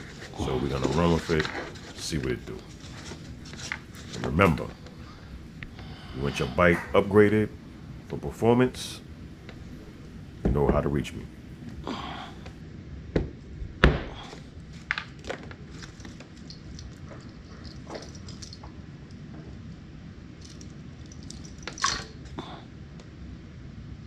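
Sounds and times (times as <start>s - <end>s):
soft rustling: 0.0s - 6.9s.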